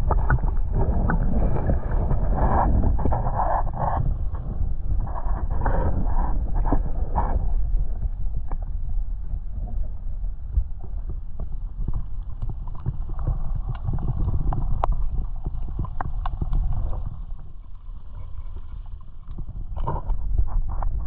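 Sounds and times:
underwater clicks and knocks: 0.0s - 5.9s, 11.3s - 21.0s
muffled underwater rumble: 0.0s - 21.0s.

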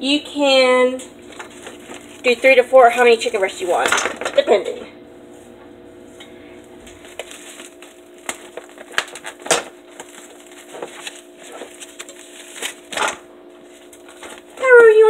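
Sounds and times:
faint steady hum: 0.0s - 15.0s
packaging crinkles and knocks: 7.0s - 13.2s.

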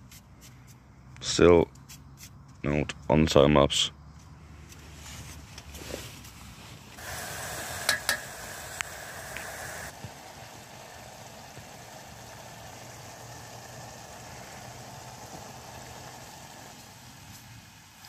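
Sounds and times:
meat sizzling in a pot: 7.0s - 18.0s
utensil knocking against pot: 7.8s - 8.3s.

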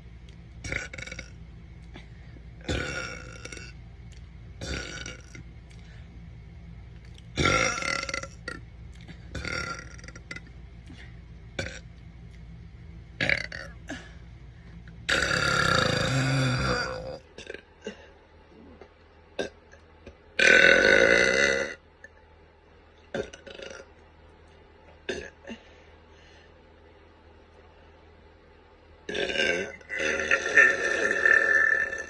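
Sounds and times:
woman burping: 2.6s - 3.7s, 15.1s - 18.7s, 25.1s - 25.6s.

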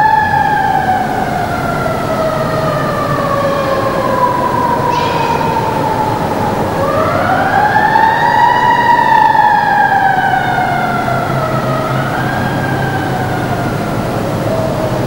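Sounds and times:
siren-like wailing tone: 1.8s - 13.2s.

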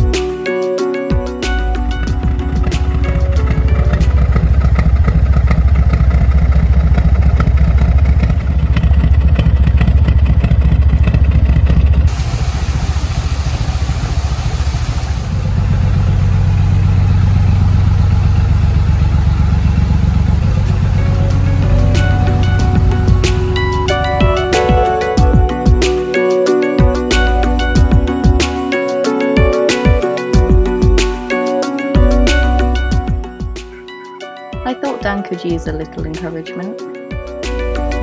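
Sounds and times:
diesel engine low rumble: 1.4s - 26.1s, 26.8s - 28.2s, 32.0s - 33.7s, 37.2s - 38.0s
rushing hiss: 12.1s - 15.5s.

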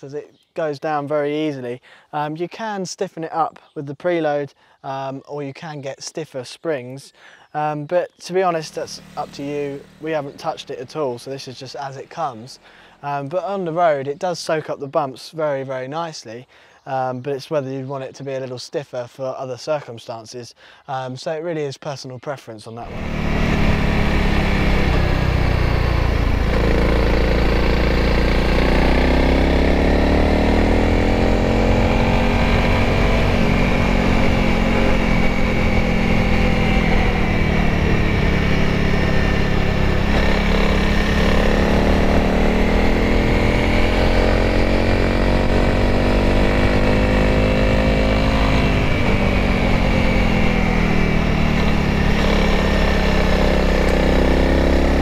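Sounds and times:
motorcycle engine revving: 8.5s - 12.7s, 22.8s - 55.0s.

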